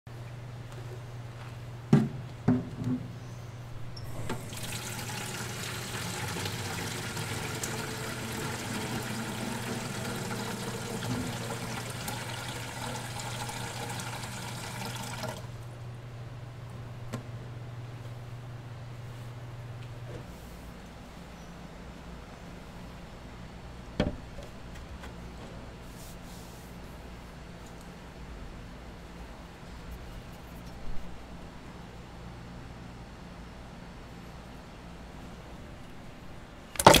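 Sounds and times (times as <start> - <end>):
tap water filling plastic pan: 4.3 - 15.5, 36.8 - 37.0.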